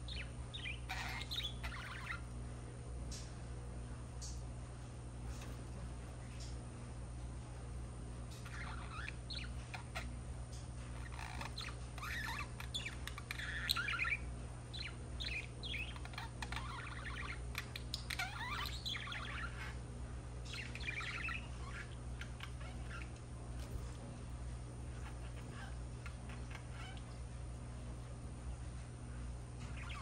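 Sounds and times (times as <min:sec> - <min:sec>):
budgerigars chirping and chattering: 0:00.0 - 0:02.3, 0:08.3 - 0:10.1, 0:11.0 - 0:23.8, 0:24.8 - 0:27.2, 0:29.6 - 0:30.0
steady low hum: 0:00.0 - 0:30.0.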